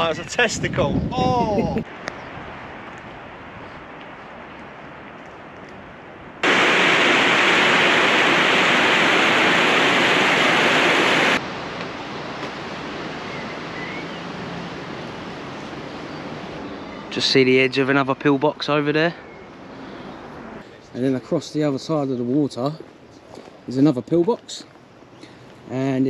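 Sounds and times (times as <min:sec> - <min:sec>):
outdoor background hiss: 0:00.0 - 0:26.0
rush of running water: 0:06.4 - 0:16.4.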